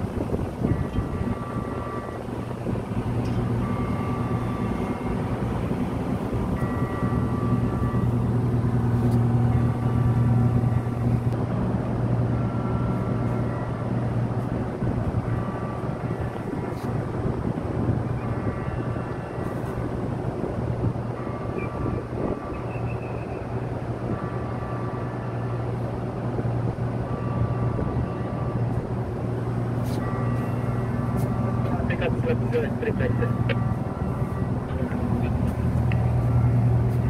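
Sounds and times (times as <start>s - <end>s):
ship machinery drone: 0.0s - 37.0s
faint high whining tones: 0.4s - 20.1s.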